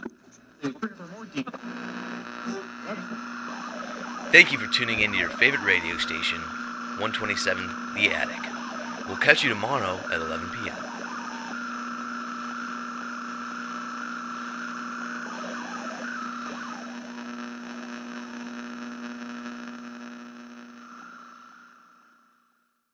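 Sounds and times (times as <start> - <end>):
low electronic hum: 3.0 - 17.6.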